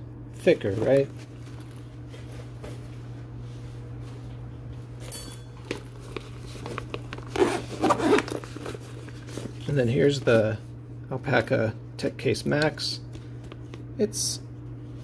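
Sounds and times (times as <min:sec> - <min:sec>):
fabric cases rustling: 0:05.6 - 0:09.6
zipper rasp: 0:07.3 - 0:08.3.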